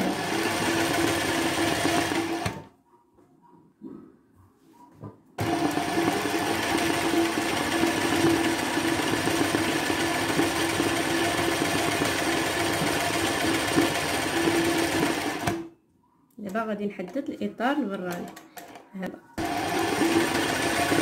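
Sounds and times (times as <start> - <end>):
sewing machine running: 0.0 - 2.7, 5.4 - 15.7, 19.4 - 21.0.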